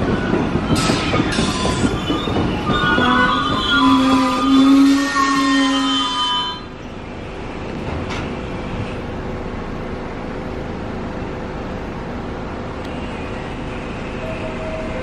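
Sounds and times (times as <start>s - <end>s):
subway train rumbling: 0.0s - 15.0s
wheel squeal: 0.1s - 6.7s.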